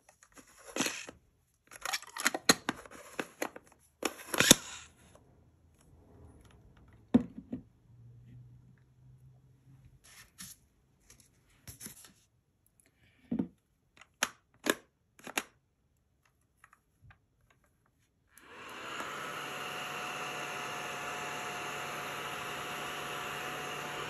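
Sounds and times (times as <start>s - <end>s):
vacuum fan motor hissing: 18.4s - 24.0s.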